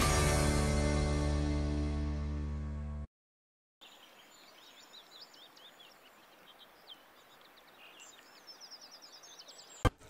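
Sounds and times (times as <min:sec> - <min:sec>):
birds chirping and whistling: 0:03.8 - 0:09.9.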